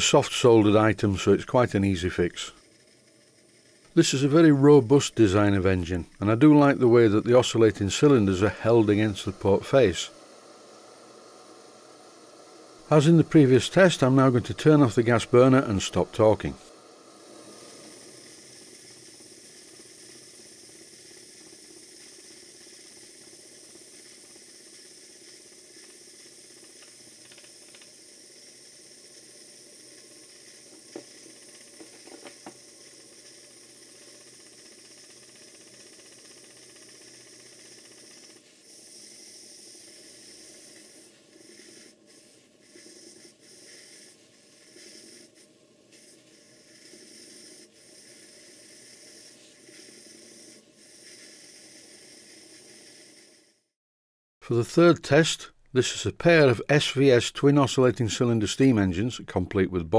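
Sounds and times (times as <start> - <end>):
steam engine hissing: 0.0 - 53.6
sharp ticks: 17.8 - 29.0, 30.0 - 39.5.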